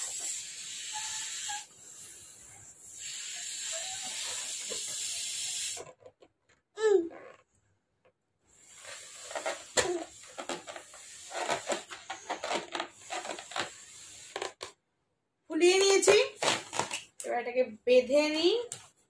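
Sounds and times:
breathy puffs blowing up balloon: 0.0s - 6.0s, 8.5s - 14.6s.

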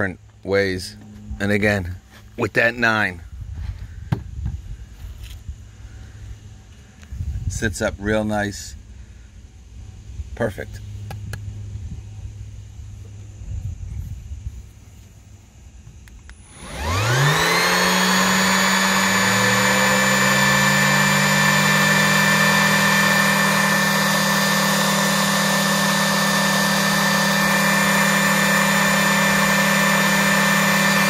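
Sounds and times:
orbital sander motor running: 16.1s - 31.0s.

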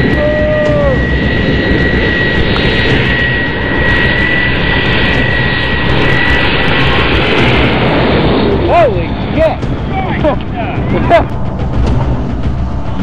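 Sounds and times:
high steady whine: 0.0s - 13.0s
jet engine noise: 0.0s - 13.0s.

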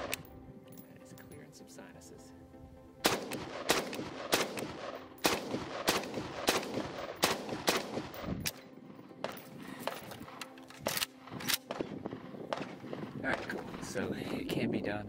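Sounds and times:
rifle firing single shots: 3.0s - 14.1s.

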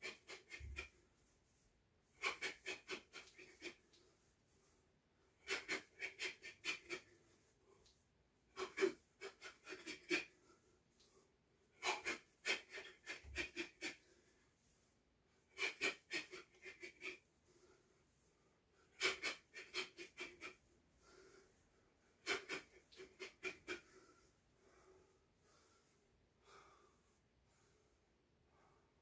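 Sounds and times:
sharp hissing breaths: 2.2s - 4.7s.

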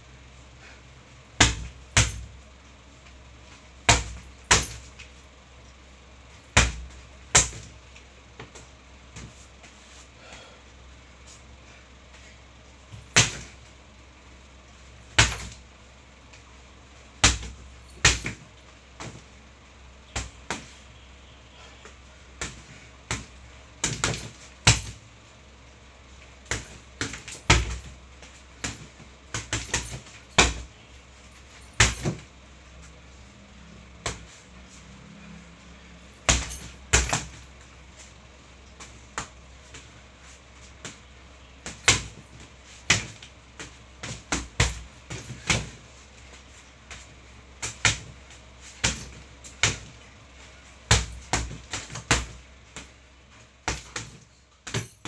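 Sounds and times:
gloves punching heavy bag: 1.4s - 2.4s, 3.8s - 5.0s, 6.4s - 7.8s, 15.1s - 15.6s, 17.2s - 19.3s, 22.4s - 25.0s, 26.4s - 30.8s, 31.4s - 32.3s, 36.2s - 37.8s, 41.6s - 50.1s, 50.8s - 53.0s, 53.6s - 55.0s.

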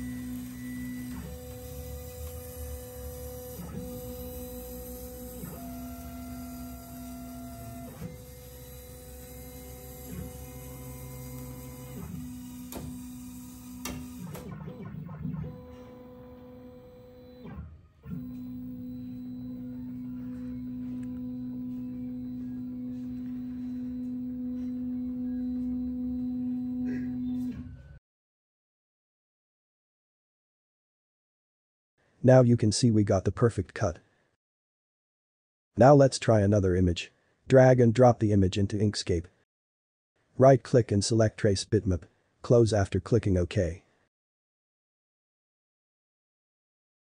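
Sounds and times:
stepper motors whining: 0.0s - 27.7s.

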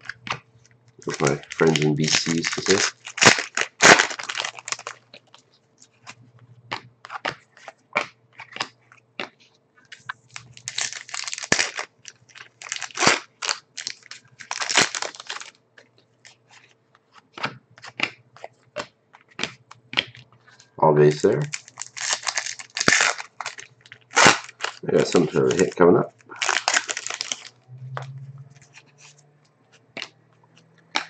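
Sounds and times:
foil wrapper crinkling and tearing: 1.0s - 6.2s, 9.9s - 15.6s, 16.2s - 27.6s
cards clicking and slapping: 6.7s - 16.4s, 17.0s - 20.6s, 29.7s - 31.0s.

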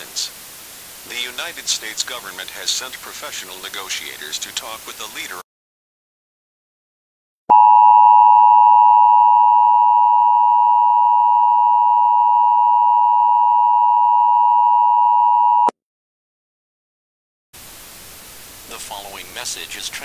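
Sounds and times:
two-tone alarm: 7.5s - 15.7s.

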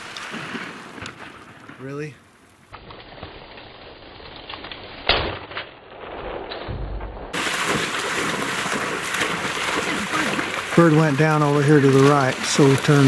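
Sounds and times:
shotgun shot: 5.0s - 7.8s.

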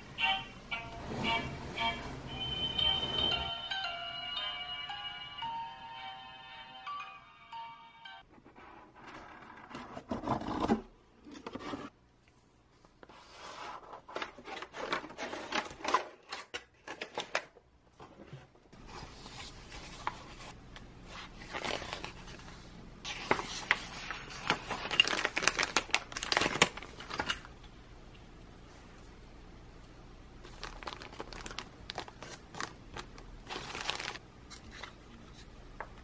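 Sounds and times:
cardboard sliding and scraping: 13.1s - 14.2s
paper and plastic bags rustling: 18.8s - 27.5s, 30.4s - 35.1s.

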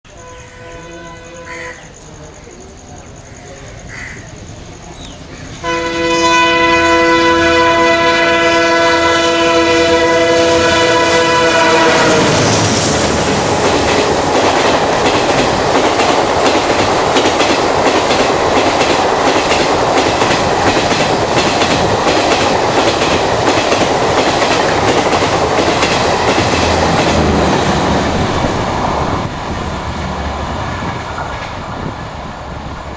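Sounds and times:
locomotive horn blast: 0.1s - 1.8s, 5.6s - 12.6s
train wheels clattering on rails: 11.3s - 32.6s.

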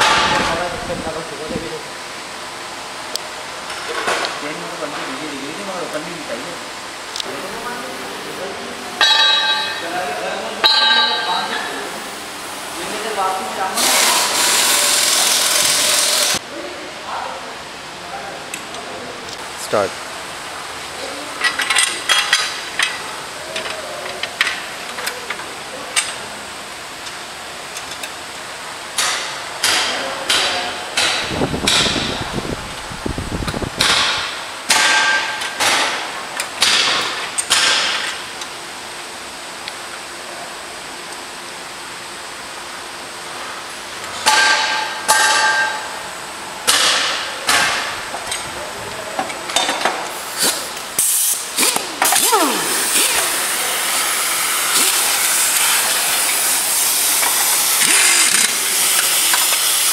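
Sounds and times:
metal tools clanking: 9.0s - 10.0s.

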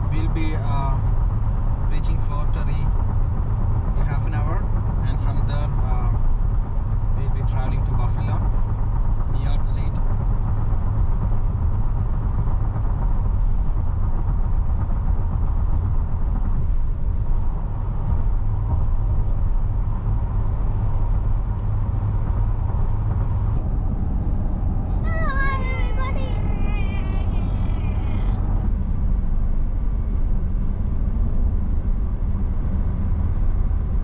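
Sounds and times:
tyres rumbling on road: 0.0s - 34.0s
person speaking: 25.0s - 28.3s.

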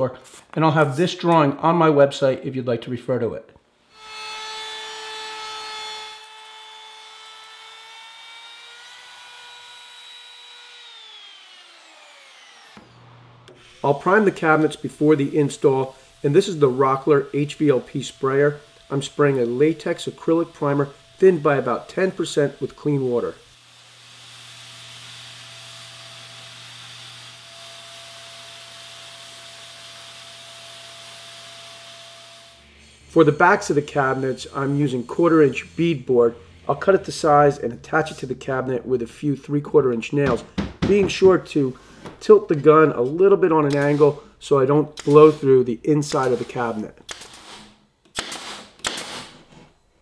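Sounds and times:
router whining and winding down: 6.1s - 14.8s
paint sprayer rushing air: 45.0s - 45.5s, 46.1s - 49.3s.

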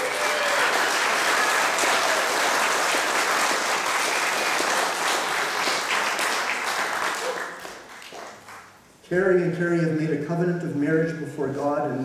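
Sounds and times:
crowd applauding: 0.0s - 8.8s.

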